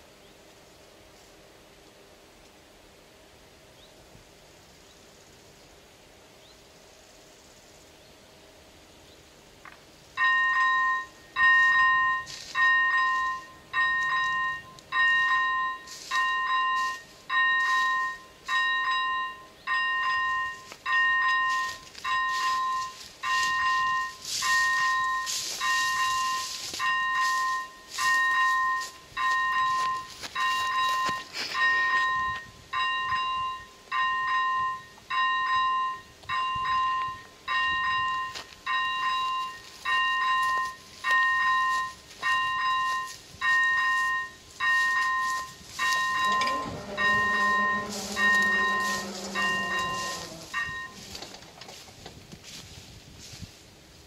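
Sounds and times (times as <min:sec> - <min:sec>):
two-tone warning bell ringing: 0:10.2 - 0:51.4.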